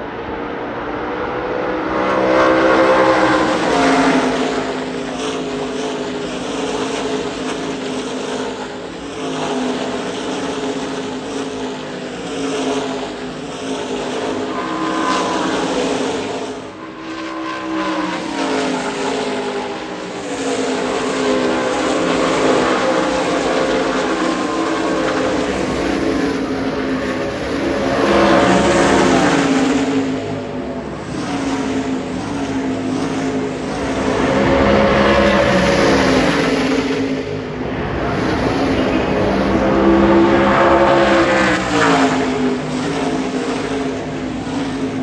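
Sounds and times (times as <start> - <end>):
race truck engines passing: 0.0 - 45.0.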